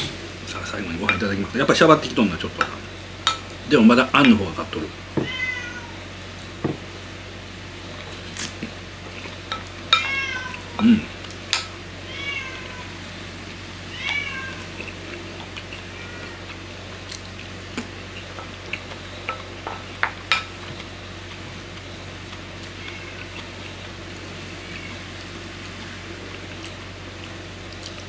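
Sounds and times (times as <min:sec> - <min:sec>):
cat meowing: 0:05.2 - 0:06.0, 0:10.0 - 0:10.8, 0:12.0 - 0:13.0, 0:13.9 - 0:14.8, 0:15.9 - 0:16.5, 0:22.7 - 0:23.5.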